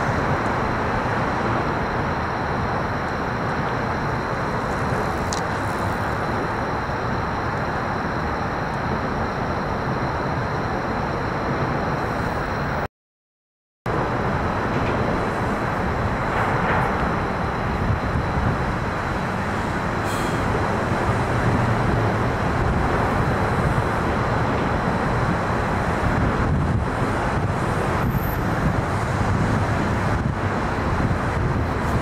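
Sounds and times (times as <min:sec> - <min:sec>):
road traffic rumble: 0:00.0 - 0:12.9, 0:13.9 - 0:32.0
wind buffeting microphone: 0:13.9 - 0:32.0.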